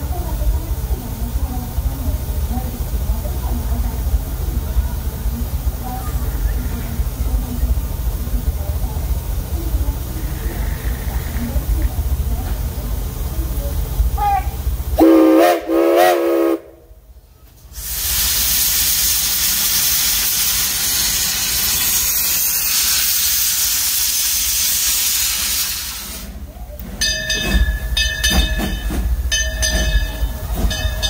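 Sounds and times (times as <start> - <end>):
steam hissing: 0.0 - 16.7, 17.6 - 31.0
locomotive chuffing: 0.0 - 31.0
steam locomotive whistle toots: 14.2 - 16.9.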